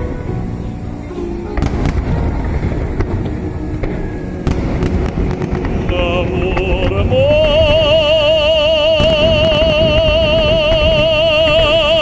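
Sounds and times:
continuous low rumble: 0.0 - 12.0
fireworks bursting: 0.0 - 12.0
person singing with vibrato: 5.8 - 12.0.

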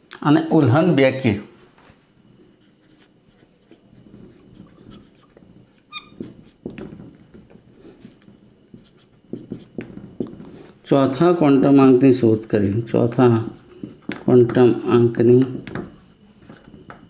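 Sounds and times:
marker scratching on whiteboard: 2.5 - 8.1, 8.7 - 10.6, 12.2 - 17.0
marker squeak: 2.6 - 6.7.

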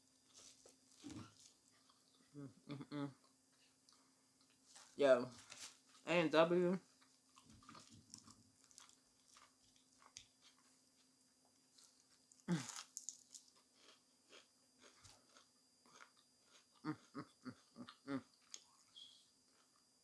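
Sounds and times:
soft chewing clicks: 1.4 - 2.3, 6.9 - 10.7, 11.7 - 19.8
onion ring crunching: 7.3 - 10.7, 11.8 - 17.2.

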